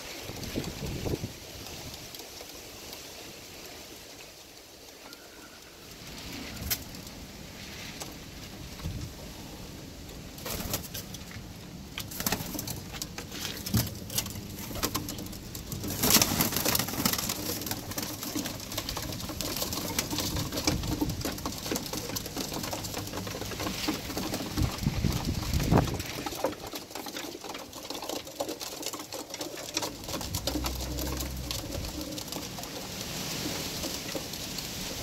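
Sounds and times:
wings flapping: 10.4s - 11.2s, 12.0s - 35.0s
beaks pecking on wood: 12.0s - 34.9s
pigeons cooing: 27.7s - 33.6s.

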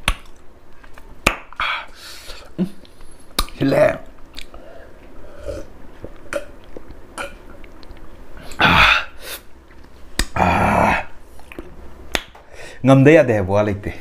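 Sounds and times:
mouth clicks and chewing: 4.2s - 4.6s
man burping loudly: 8.4s - 9.2s, 10.4s - 11.2s.

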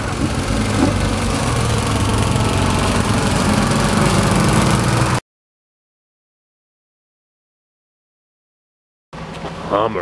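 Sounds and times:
lawnmower engine cutting grass: 0.0s - 5.2s.

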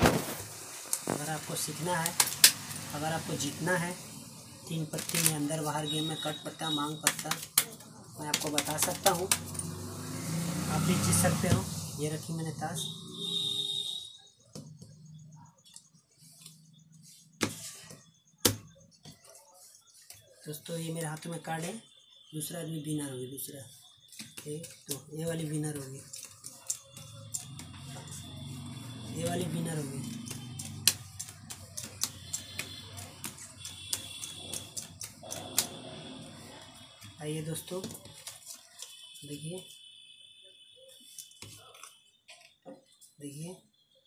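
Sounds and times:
cards slapping on tiled floor: 2.0s - 2.9s, 5.0s - 5.5s, 6.8s - 9.8s, 24.1s - 25.1s, 25.8s - 28.2s, 29.3s - 35.9s, 37.0s - 39.1s, 41.1s - 42.0s
playing cards rustling: 4.9s - 5.7s, 7.0s - 9.5s, 24.1s - 35.8s, 37.8s - 39.0s.

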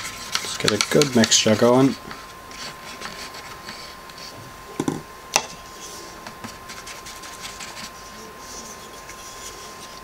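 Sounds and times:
paintbrush scraping paint in palette: 5.8s - 10.0s.

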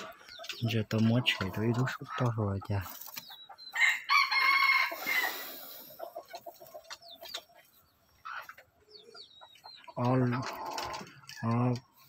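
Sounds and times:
chicken clucking: 0.0s - 12.0s
chicken calling: 3.4s - 11.6s.

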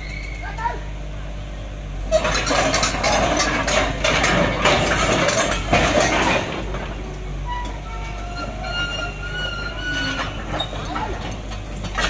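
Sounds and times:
diesel engine drone: 0.0s - 12.0s
tracks clanking and rattling: 2.0s - 12.0s
thin metallic squeals: 7.4s - 11.2s.

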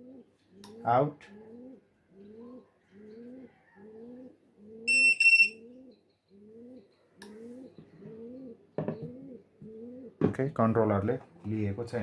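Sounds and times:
pigeon cooing: 0.0s - 10.2s
high electronic beeps: 4.9s - 5.6s.

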